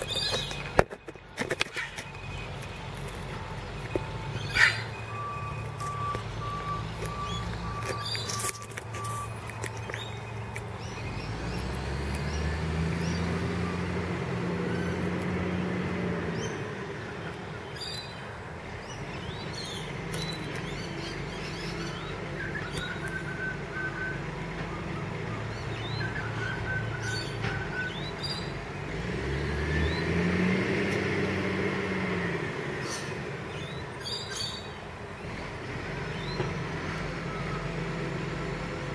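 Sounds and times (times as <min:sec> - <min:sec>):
birds chirping: 0:00.0 - 0:30.6, 0:32.5 - 0:38.2
warning beep: 0:02.0 - 0:09.4
garbage truck diesel engine revving: 0:10.1 - 0:17.6, 0:18.5 - 0:33.8, 0:35.0 - 0:38.9.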